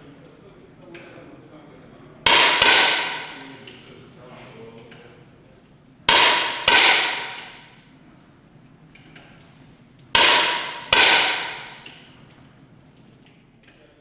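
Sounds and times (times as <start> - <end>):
air rifle shots ringing: 2.3 - 3.5, 6.1 - 7.8, 10.2 - 12.2.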